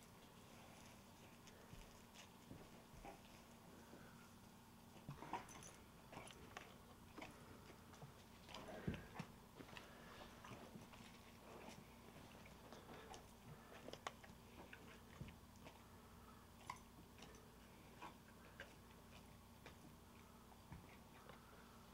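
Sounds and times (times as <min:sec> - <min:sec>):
low steady hum: 0:00.0 - 0:21.9
dog chewing treat: 0:05.0 - 0:21.6.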